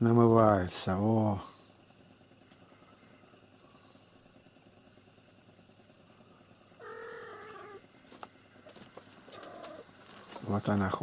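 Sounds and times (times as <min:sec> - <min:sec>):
cat meowing: 0:06.8 - 0:07.8.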